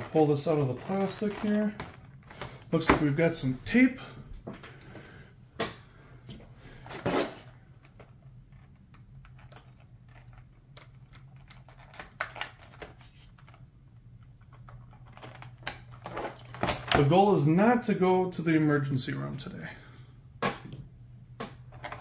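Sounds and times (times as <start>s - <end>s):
stiff plastic handling: 0.0s - 17.2s.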